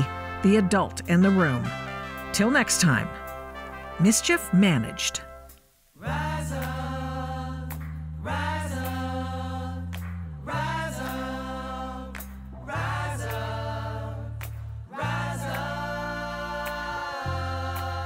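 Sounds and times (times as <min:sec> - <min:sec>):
gospel group singing: 0:06.0 - 0:18.0.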